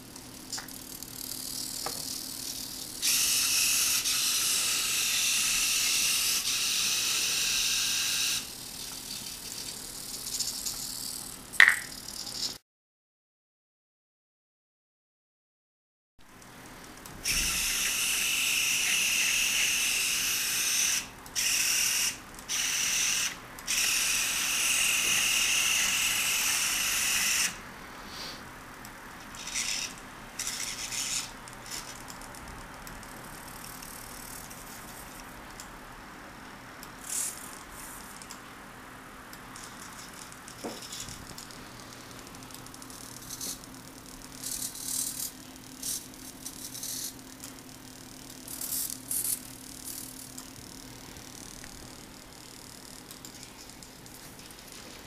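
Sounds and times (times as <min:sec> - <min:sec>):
servos whirring: 0:00.8 - 0:11.2, 0:17.2 - 0:27.6, 0:29.3 - 0:32.0.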